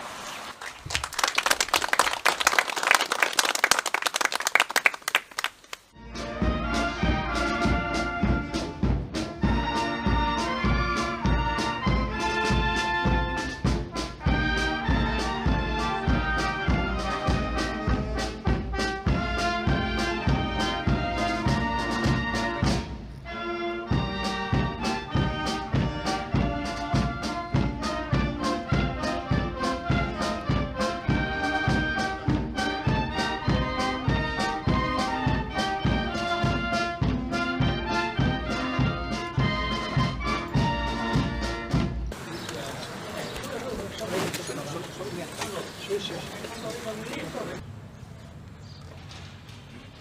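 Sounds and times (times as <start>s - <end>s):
wind band playing: 5.9s - 42.3s
steady drum beat: 6.0s - 23.1s, 23.9s - 42.3s.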